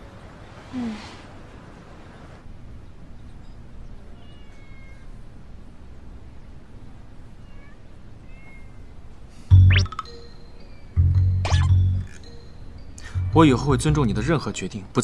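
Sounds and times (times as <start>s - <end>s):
cat meowing faintly: 4.0s - 5.2s, 7.3s - 8.9s.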